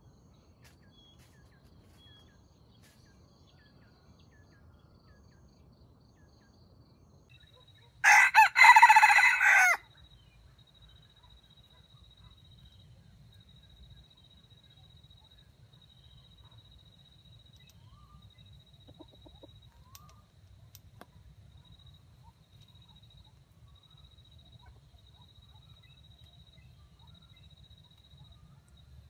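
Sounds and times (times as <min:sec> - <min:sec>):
rooster clucking softly: 0:18.9 - 0:19.7.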